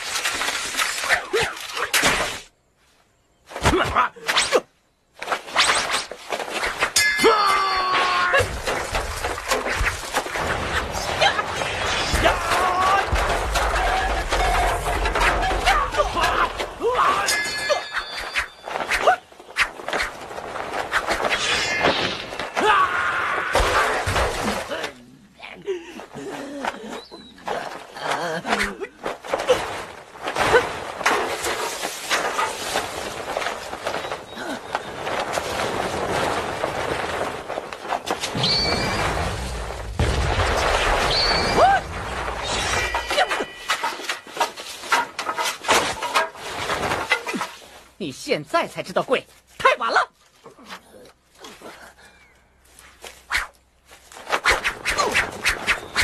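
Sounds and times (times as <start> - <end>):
ringing metallic clangs: 6.9 - 7.8, 17.0 - 18.8, 42.4 - 44.4
ringing metal clash: 7.0 - 7.7, 17.1 - 18.6
rumbling rush of debris: 8.4 - 17.2, 29.0 - 47.9
swooping swish: 54.3 - 56.0.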